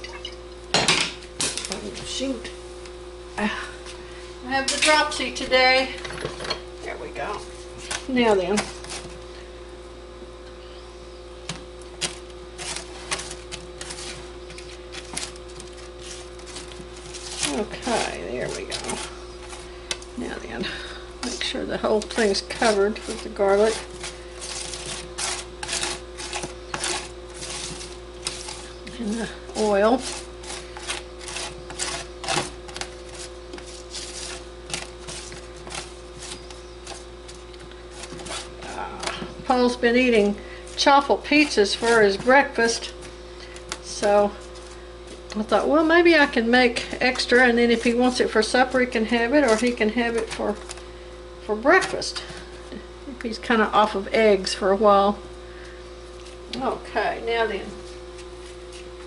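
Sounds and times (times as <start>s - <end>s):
spatula scraping metal pan: 22.6s - 28.8s.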